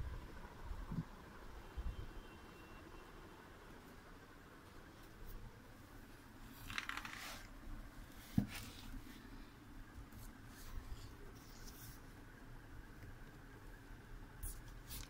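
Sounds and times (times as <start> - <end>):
cardboard scraping and rustling: 6.6 - 7.5
faint scratches: 10.1 - 12.2.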